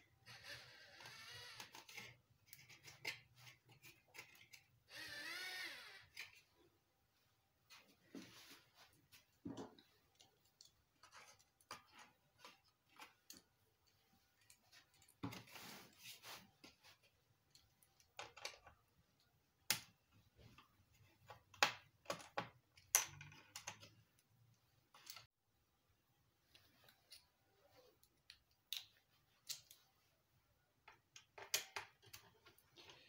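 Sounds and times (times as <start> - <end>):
screwdriver clicks and scraping: 0.4 - 6.5
plastic parts being handled: 1.4 - 5.0, 8.7 - 25.3.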